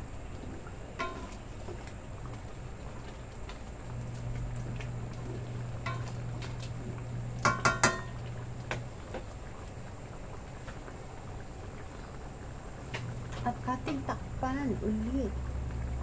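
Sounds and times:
low steady hum: 0:00.0 - 0:16.0
spatula knocking on metal wok: 0:07.4 - 0:08.1.

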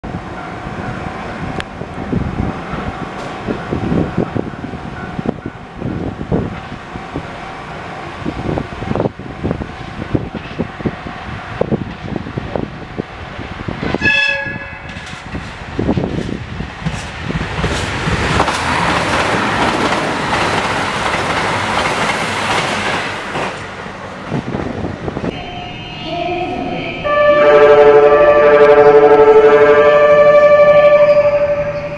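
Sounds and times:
train passing at high speed: 0:00.0 - 0:31.9
train horn blast: 0:14.0 - 0:15.0, 0:25.3 - 0:31.9.

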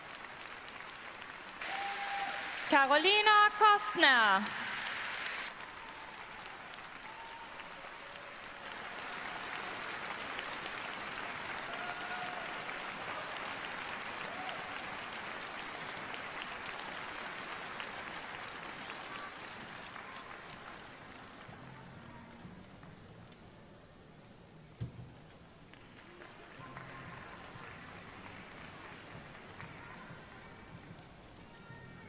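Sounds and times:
audience applauding: 0:00.0 - 0:22.4, 0:25.7 - 0:31.9.

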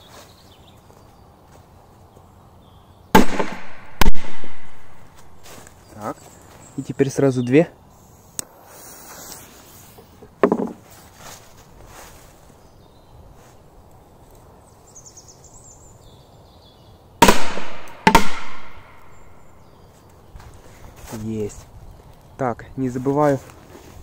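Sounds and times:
firecracker bangs: 0:03.2 - 0:05.0, 0:17.2 - 0:19.0.

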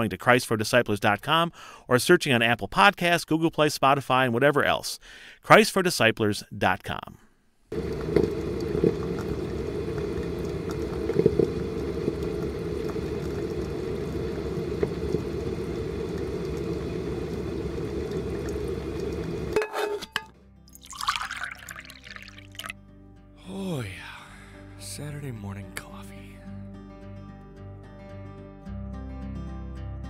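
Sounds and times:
coffee maker bubbling and gurgling: 0:07.7 - 0:19.6, 0:20.8 - 0:22.7.

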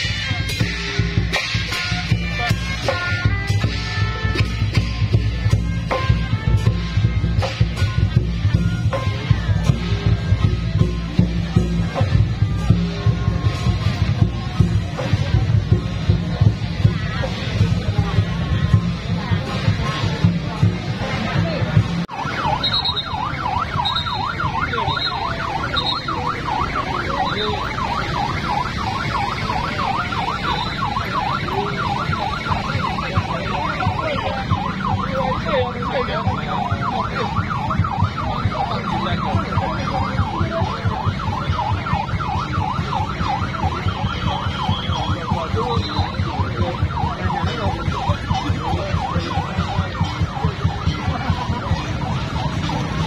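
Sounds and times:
street and crowd noise: 0:00.0 - 0:53.0
siren warbling: 0:22.1 - 0:53.0.

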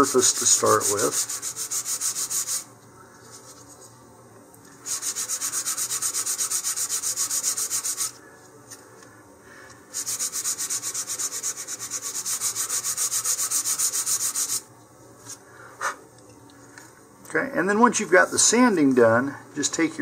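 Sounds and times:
sandpaper rasping on wood: 0:00.0 - 0:02.7, 0:04.9 - 0:08.2, 0:10.0 - 0:14.6.

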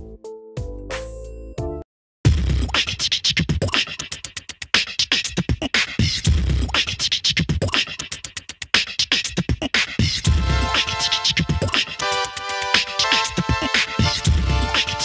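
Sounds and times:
music with percussive beat and bass: 0:00.0 - 0:15.0.

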